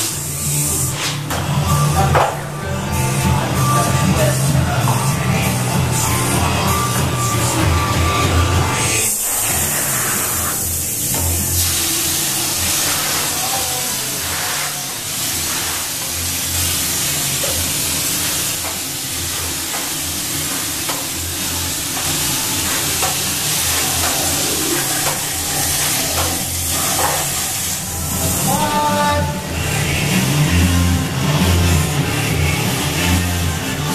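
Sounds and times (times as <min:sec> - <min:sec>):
low rhythmic pulses: 0:00.0 - 0:15.2
spray gun hissing: 0:08.8 - 0:30.0.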